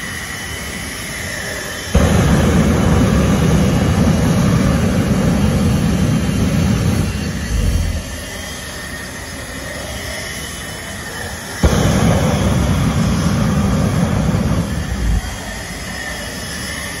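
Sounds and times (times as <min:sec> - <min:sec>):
jet engine running: 0:00.0 - 0:17.0
afterburner blast: 0:02.0 - 0:08.5, 0:11.6 - 0:17.0.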